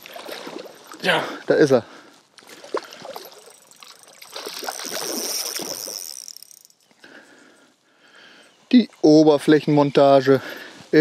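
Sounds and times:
fish splashing at the surface: 2.5 - 5.9
fishing reel clicking whir: 3.2 - 6.9.

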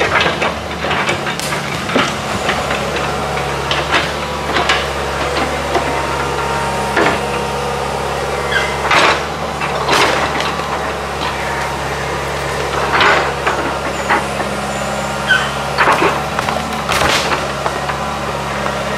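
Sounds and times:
falling debris crashing: 0.0 - 6.1, 15.8 - 18.2
excavator diesel engine running: 0.0 - 18.9
wood splintering cracks: 15.8 - 18.0.

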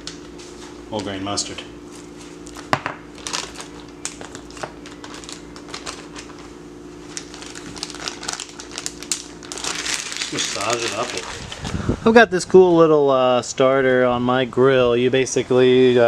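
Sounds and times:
plastic bag crinkling: 2.4 - 11.8.

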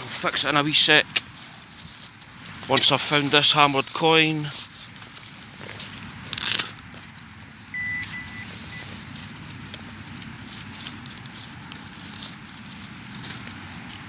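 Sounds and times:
frozen soil and straw crackling: 0.0 - 14.0
pinpointer high beep: 7.7 - 8.9.

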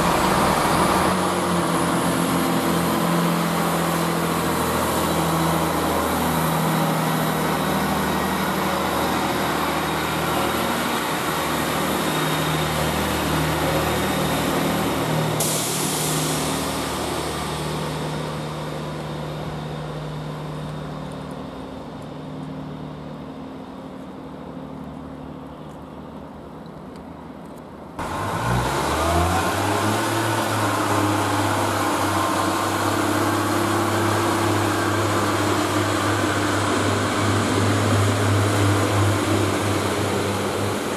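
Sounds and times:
train diesel engine running: 0.0 - 40.9
air hiss: 15.3 - 17.8.

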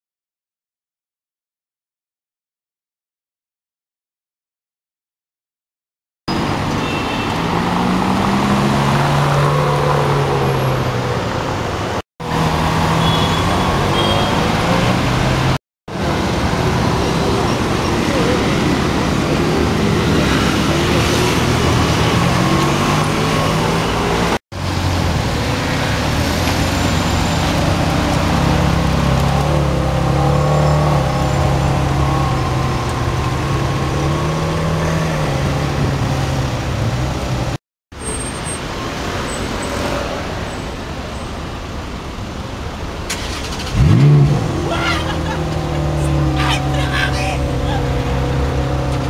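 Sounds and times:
street traffic noise: 6.3 - 49.0
sports car engine at low revs: 43.7 - 46.3.

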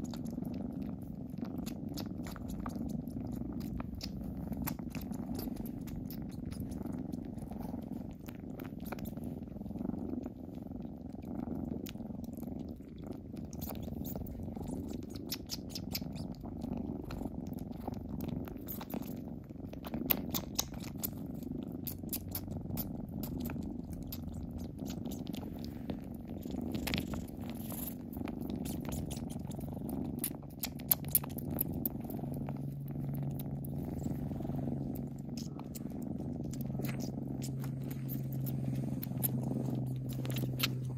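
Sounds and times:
deeper steady purr: 0.0 - 40.9
kittens purring: 0.0 - 40.9
small wet mouthing clicks: 3.4 - 6.6, 19.7 - 21.2, 30.2 - 32.6, 35.0 - 40.9.

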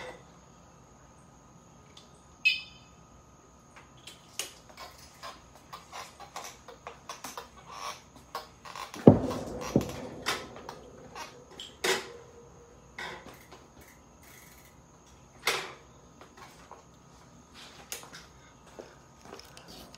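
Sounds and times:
bicycle knocking and clunking: 4.4 - 16.7.

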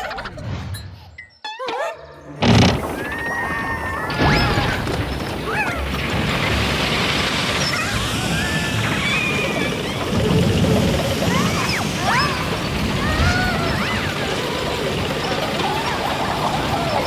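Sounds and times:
cartoon wobbly squeak: 1.2 - 4.9
noisy rush with whistling glides: 2.5 - 17.0.

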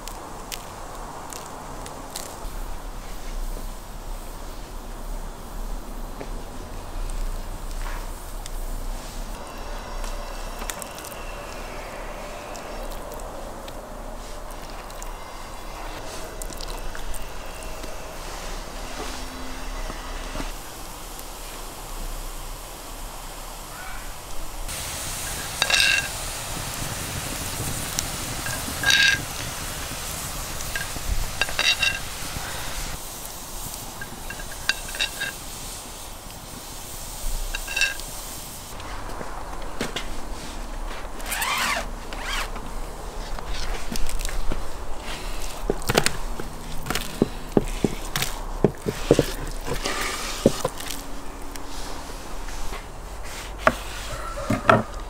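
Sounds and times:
steady hiss: 0.0 - 55.0
spoon clinking metal pot: 25.4 - 26.1, 28.5 - 29.3, 30.6 - 32.1, 34.0 - 35.4, 37.5 - 38.1.

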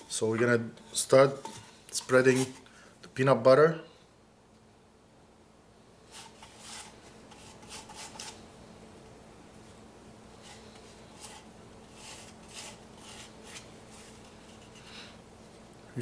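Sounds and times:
faint steady hum: 0.0 - 16.0
brush rubbing and scraping: 0.8 - 2.6, 6.1 - 8.5, 10.3 - 15.0.

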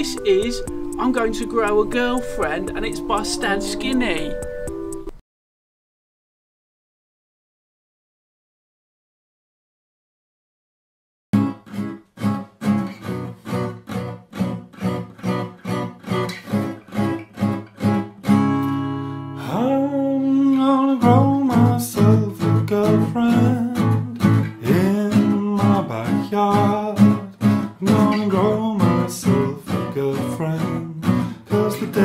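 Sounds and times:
person singing: 0.0 - 4.5, 19.4 - 32.0
acoustic guitar strumming: 0.0 - 5.2, 11.4 - 32.0.

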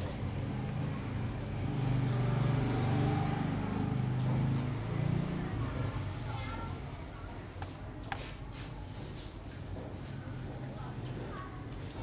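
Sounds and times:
vehicle engine running: 0.0 - 6.4.

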